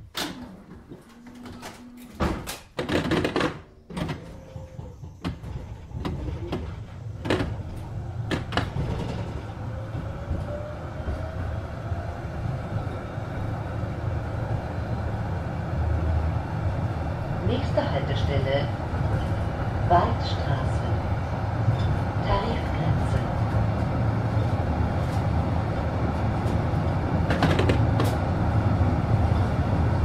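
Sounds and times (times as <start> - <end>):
tram doors knocking and clunking: 0.0 - 30.0
tram motor and running noise: 3.8 - 30.0.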